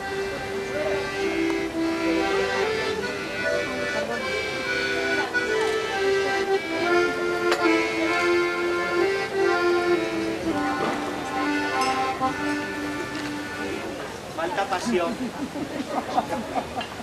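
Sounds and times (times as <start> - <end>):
accordion playing a tune: 0.0 - 17.0.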